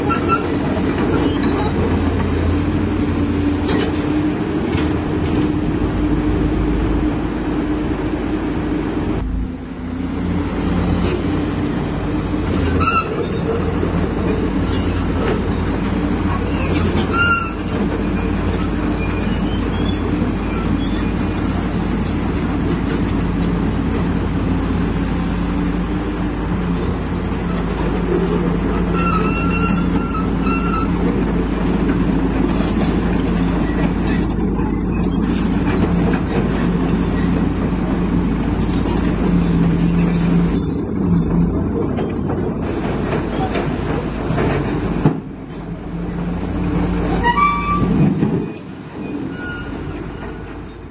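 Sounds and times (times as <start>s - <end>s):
excavator diesel engine droning: 0.0s - 50.9s
short high squeals: 28.9s - 35.5s, 47.1s - 50.2s.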